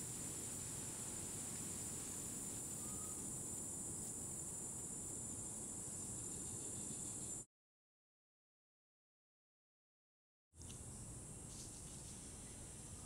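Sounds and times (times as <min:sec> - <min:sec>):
low forest hiss: 0:00.0 - 0:07.5, 0:10.6 - 0:13.0
high-pitched insect drone: 0:02.6 - 0:03.5.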